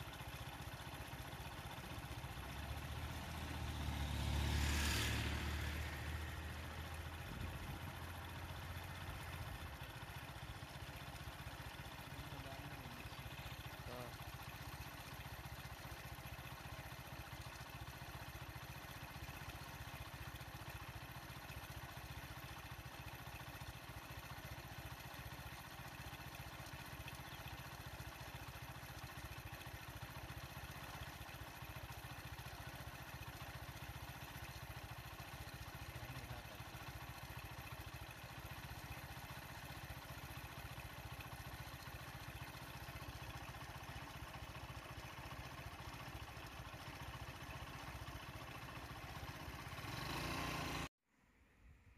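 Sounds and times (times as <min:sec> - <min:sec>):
vehicle engine idling: 0:00.0 - 0:50.9
vehicle driving off: 0:02.5 - 0:09.2, 0:49.1 - 0:50.9.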